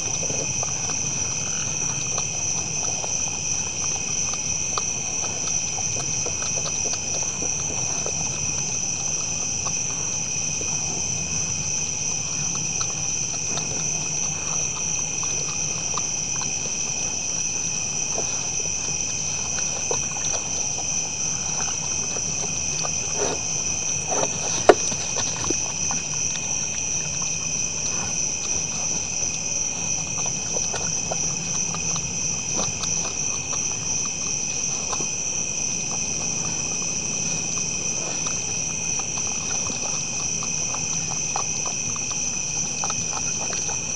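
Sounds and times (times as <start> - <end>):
deer eating from plastic bowls: 0.0 - 43.9
night insects chorus: 0.0 - 43.9.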